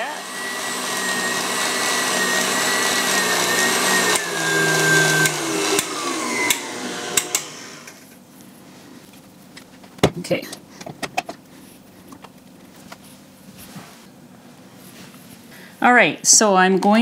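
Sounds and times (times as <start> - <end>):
stand mixer motor whining: 0.0 - 8.0
whisk beating batter: 0.1 - 7.6.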